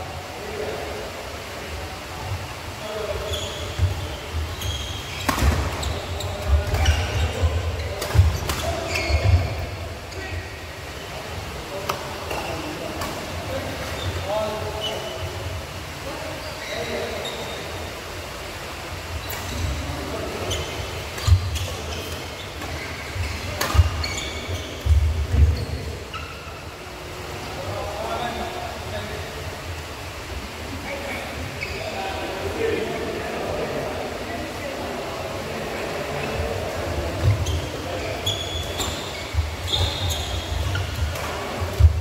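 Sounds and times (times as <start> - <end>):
shoe squeaks: 3.2 - 10.3, 13.9 - 15.2, 16.4 - 17.6, 20.4 - 26.6, 31.6 - 32.0, 37.2 - 41.5.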